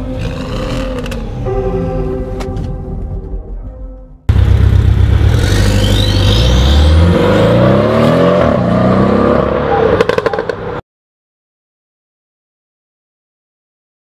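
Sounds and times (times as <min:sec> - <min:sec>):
car engine revving: 0:04.3 - 0:10.8.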